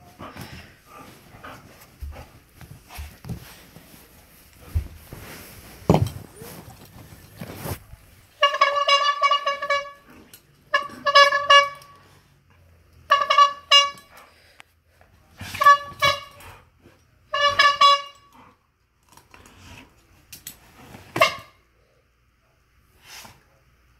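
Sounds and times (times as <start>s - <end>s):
rustling: 0.0s - 8.5s
rubber-bulb bicycle horn honking: 8.4s - 10.1s, 10.7s - 12.1s, 13.1s - 14.2s, 15.6s - 16.5s, 17.3s - 18.4s, 21.1s - 21.6s.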